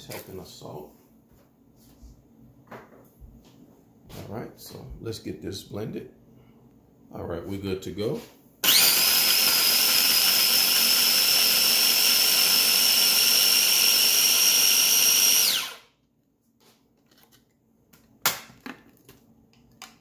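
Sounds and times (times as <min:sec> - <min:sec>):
electric food chopper whining: 0:08.6 - 0:15.9.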